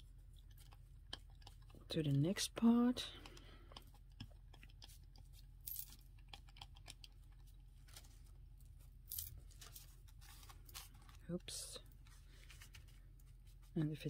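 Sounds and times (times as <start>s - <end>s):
low steady hum: 0.0s - 14.0s
plastic sheet and paper rustling: 9.4s - 13.7s.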